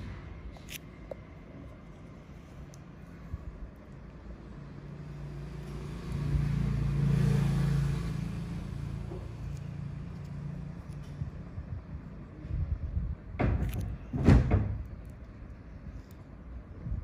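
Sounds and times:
vehicle engine passing by: 0:04.5 - 0:11.4.

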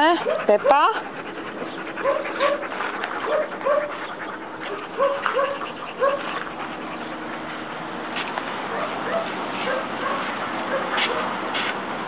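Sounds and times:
dog whining: 0:00.2 - 0:07.2.

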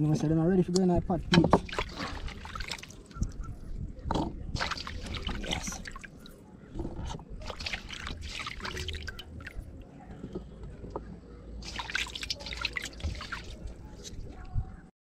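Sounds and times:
water splashing in steel basin: 0:01.5 - 0:03.4, 0:04.6 - 0:06.3, 0:07.4 - 0:09.8, 0:11.6 - 0:14.0.

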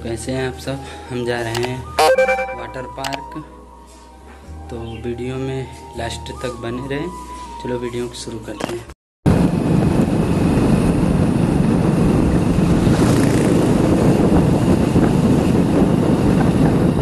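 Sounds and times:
wind buffeting microphone: 0:09.3 - 0:17.0
vehicle running noise: 0:10.3 - 0:15.2.

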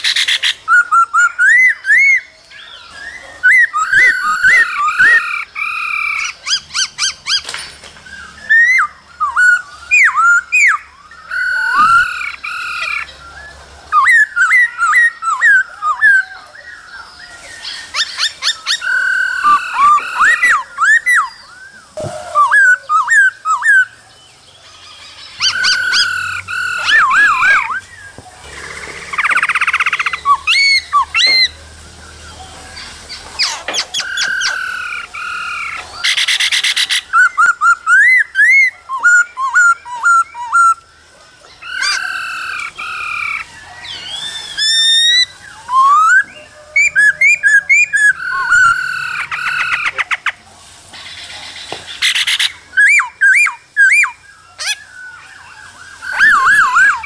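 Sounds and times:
bird harsh chattering: 0:00.0 - 0:02.3, 0:02.9 - 0:13.2, 0:17.6 - 0:21.4, 0:24.7 - 0:31.6, 0:32.3 - 0:40.8, 0:41.6 - 0:50.4, 0:56.0 - 0:57.0
bird singing whistled song: 0:00.0 - 0:40.9, 0:41.5 - 0:50.0, 0:52.0 - 0:57.0.

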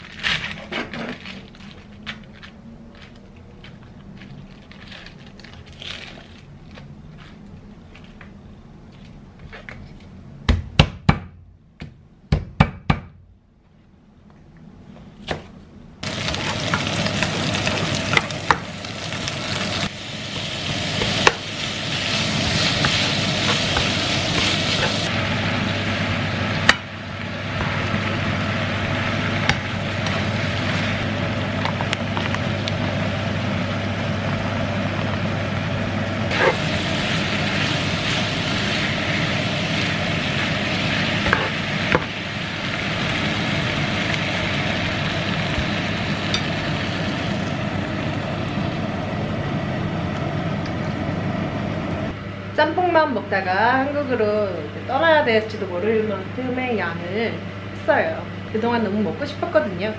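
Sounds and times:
food sizzling in frying pan: 0:16.0 - 0:51.3.

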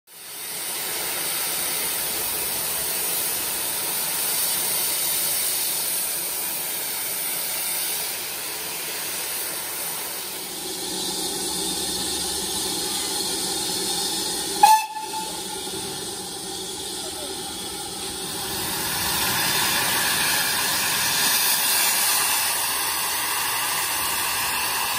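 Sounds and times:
steam hissing from safety valves: 0:00.1 - 0:24.9.

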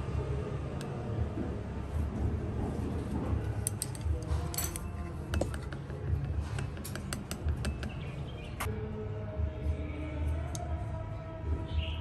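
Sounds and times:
chopsticks clinking on ice and dish: 0:03.7 - 0:05.6.

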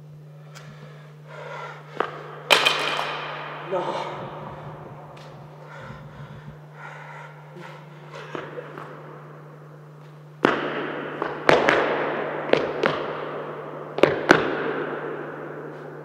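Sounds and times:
faint steady hum: 0:00.0 - 0:16.0
sharp cracks and bangs: 0:01.9 - 0:03.8, 0:10.4 - 0:15.8.

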